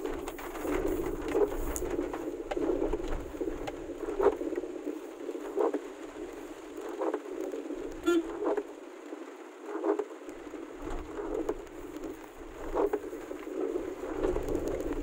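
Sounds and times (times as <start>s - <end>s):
heavy rain on a vehicle: 0.0s - 15.0s
brief buzz: 8.0s - 8.4s.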